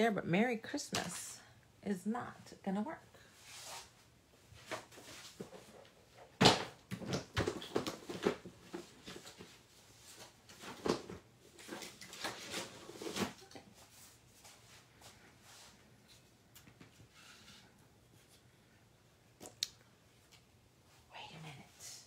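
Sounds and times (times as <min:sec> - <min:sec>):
craft supplies knocking and rustling: 0:04.7 - 0:09.5.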